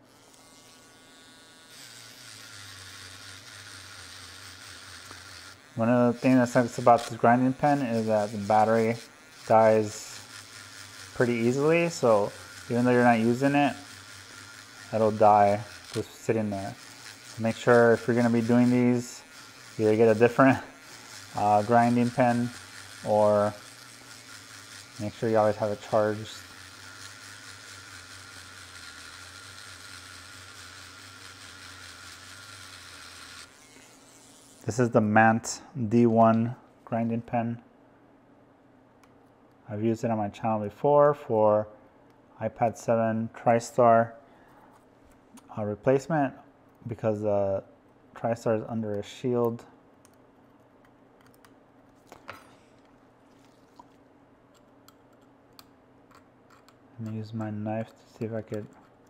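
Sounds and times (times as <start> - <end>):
handheld grinder grinding metal: 0.0 - 35.2, 56.1 - 59.0
faint steady hum: 0.0 - 59.0.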